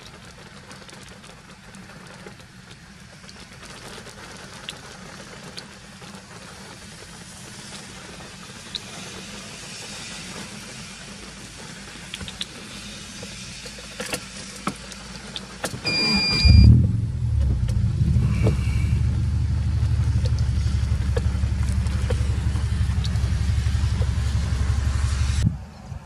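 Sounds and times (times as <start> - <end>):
car engine idling: 1.3 - 25.4
power window whirring: 15.6 - 19.0.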